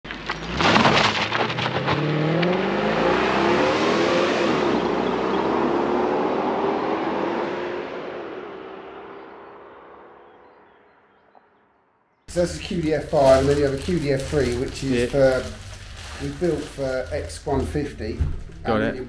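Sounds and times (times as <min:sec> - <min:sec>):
car engine accelerating hard: 0:00.4 - 0:10.8.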